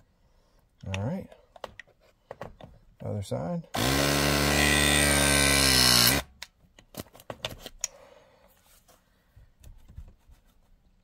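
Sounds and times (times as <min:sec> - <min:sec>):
press tool motor running: 0:03.8 - 0:06.2.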